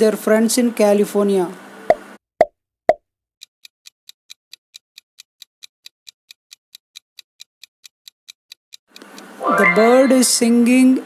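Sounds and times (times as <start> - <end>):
clock ticking: 3.4 - 10.4.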